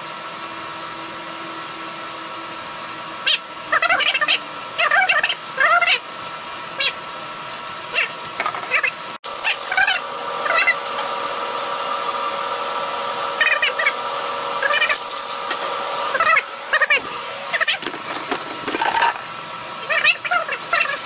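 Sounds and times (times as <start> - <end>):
steady hum: 0.0 - 21.0
high-pitched animal calls: 3.2 - 6.0, 18.8 - 21.0.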